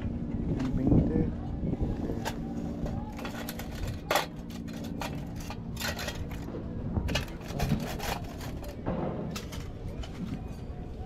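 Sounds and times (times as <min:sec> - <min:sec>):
low steady hum: 0:00.0 - 0:11.0
handling rustling and clicks: 0:02.2 - 0:10.7.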